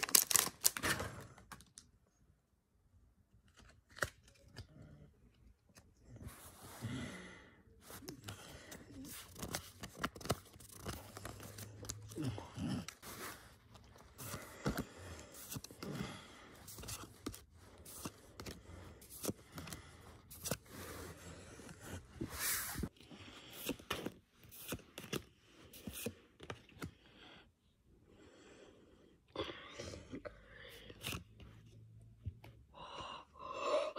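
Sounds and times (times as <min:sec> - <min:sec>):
cards scraping rustles: 0:07.8 - 0:12.2, 0:12.8 - 0:27.0.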